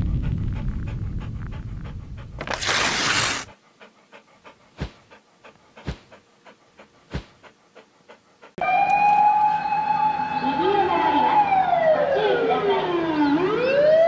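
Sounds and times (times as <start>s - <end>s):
rumble: 0.0s - 2.6s
dog panting: 0.0s - 8.6s.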